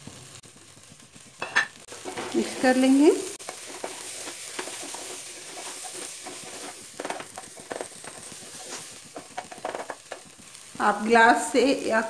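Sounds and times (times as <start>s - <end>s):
faint sizzle: 0.0s - 12.0s
spatula scraping pot: 1.5s - 10.3s.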